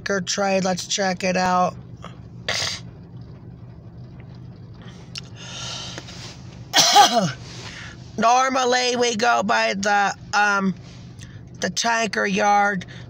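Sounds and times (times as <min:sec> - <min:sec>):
low hum inside car: 0:00.0 - 0:13.0
person clearing throat: 0:02.5 - 0:02.8, 0:06.8 - 0:07.4.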